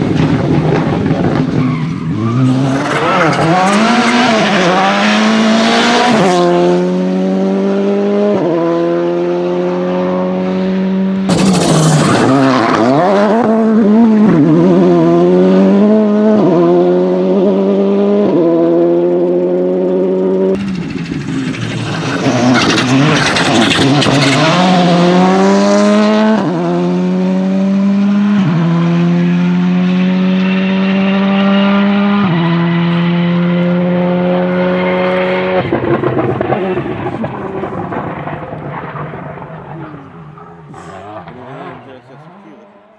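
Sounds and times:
rally car engines accelerating: 0.0s - 42.9s
car passing flat out: 30.7s - 42.9s.

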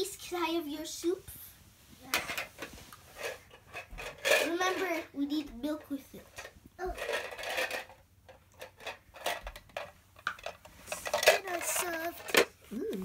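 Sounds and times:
plastic toy cookware clattering: 3.2s - 5.1s, 5.8s - 12.6s.

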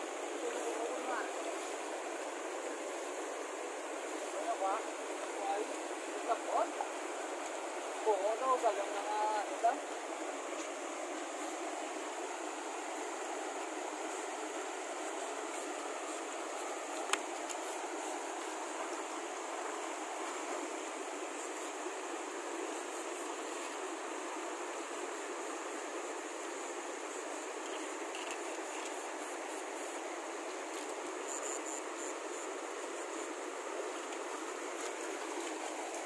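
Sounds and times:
stream rushing over rocks: 0.0s - 36.0s.

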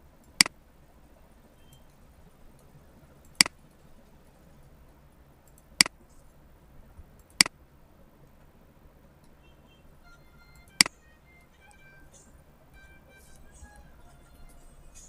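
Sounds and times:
faint steady hiss: 0.0s - 15.0s
computer mouse clicking: 1.6s - 6.4s, 7.0s - 7.6s, 10.4s - 12.4s.

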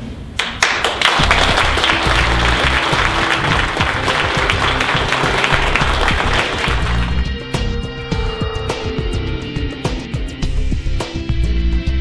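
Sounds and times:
people applauding: 0.4s - 7.3s
instrumental music: 1.2s - 12.0s.

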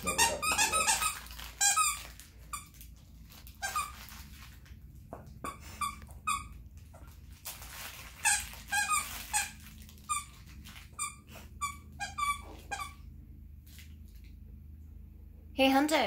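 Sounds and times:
toy squeaker squeaking: 0.0s - 2.1s, 3.6s - 4.0s, 8.2s - 10.3s, 11.0s - 13.0s.

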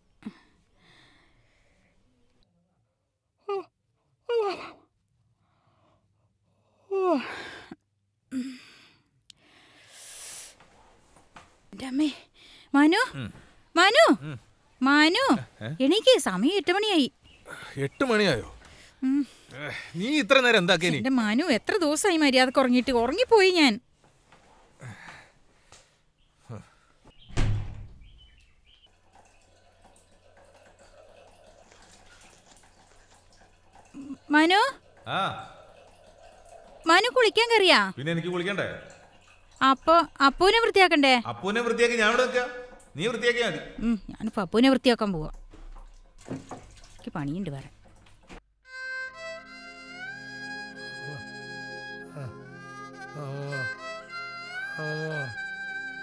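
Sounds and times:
woman sobbing: 4.3s - 4.8s, 6.9s - 8.7s, 19.0s - 19.4s.

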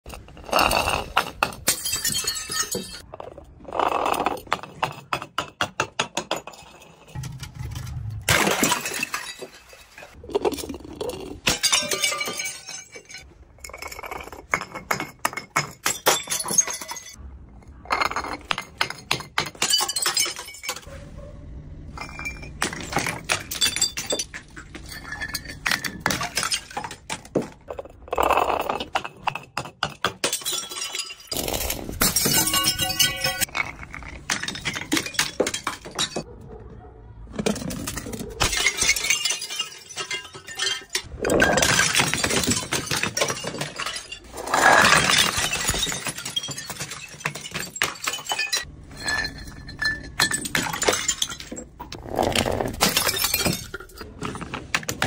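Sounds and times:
glass jars clattering down steps: 0.1s - 3.1s, 3.8s - 17.2s, 17.9s - 20.9s, 21.9s - 36.3s, 37.4s - 55.0s
glass breaking: 1.4s - 3.0s, 6.2s - 10.2s, 11.4s - 13.3s, 18.2s - 20.9s, 29.8s - 36.2s, 37.5s - 51.9s, 52.7s - 54.0s.

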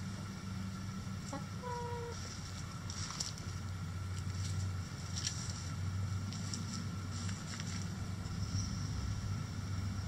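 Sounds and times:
hens pecking and scratching: 2.1s - 8.0s.

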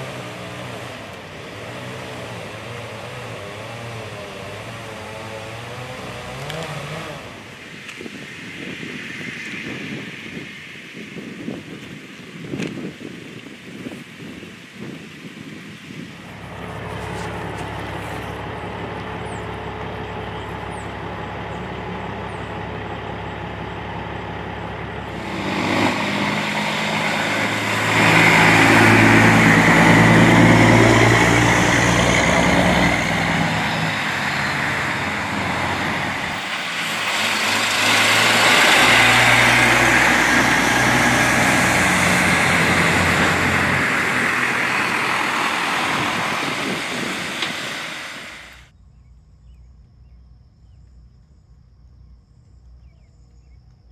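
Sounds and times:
heavy truck engine passing: 0.0s - 7.7s, 16.2s - 48.7s
diesel tow truck engine: 0.0s - 8.0s, 16.2s - 48.8s.

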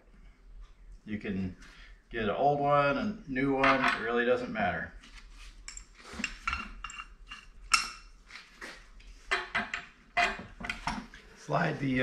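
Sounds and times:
metal tools clinking: 5.6s - 8.1s.

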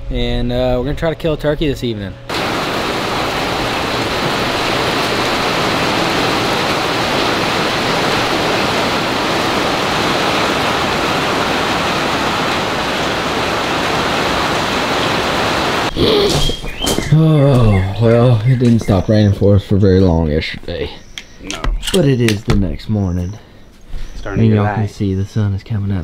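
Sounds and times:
steady rain falling: 2.3s - 16.0s.

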